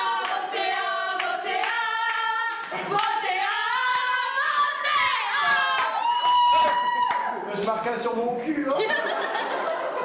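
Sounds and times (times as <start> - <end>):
young voices singing together: 0.0 - 6.1.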